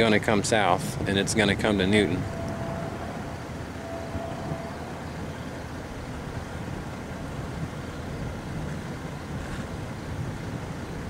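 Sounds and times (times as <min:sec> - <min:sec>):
car engine idling: 0:00.0 - 0:09.4
faint high steady tone: 0:01.6 - 0:06.9.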